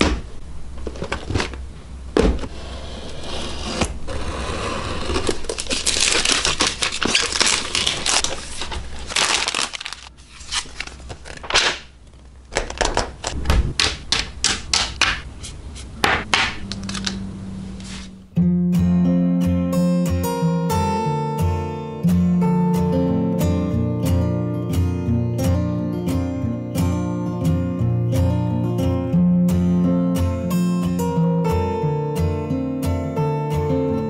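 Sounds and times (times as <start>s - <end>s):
plastic shrink-wrap crinkling and tearing: 4.9s - 13.4s
plastic parts clicking and clacking: 10.7s - 13.9s.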